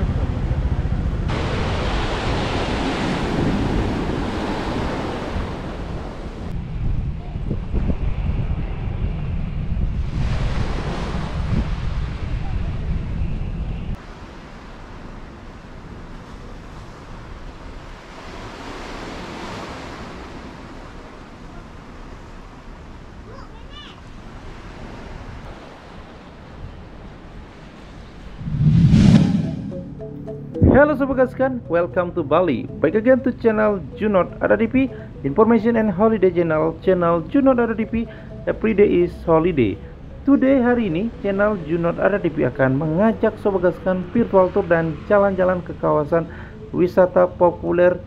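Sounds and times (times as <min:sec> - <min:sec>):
wind buffeting microphone: 0:00.0 - 0:14.0, 0:25.3 - 0:29.8
sea surf washing in: 0:01.2 - 0:06.5, 0:10.0 - 0:12.4, 0:24.0 - 0:30.8
wave breaking: 0:01.2 - 0:06.5, 0:25.4 - 0:30.9
waves breaking on beach: 0:01.3 - 0:06.5, 0:10.1 - 0:12.3, 0:14.0 - 0:28.4.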